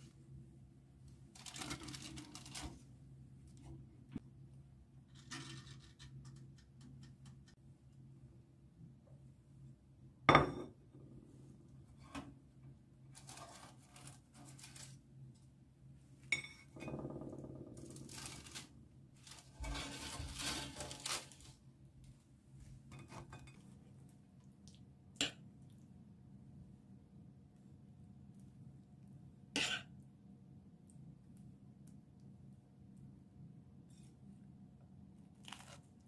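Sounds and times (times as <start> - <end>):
scraping and rattling: 17.3 - 21.5.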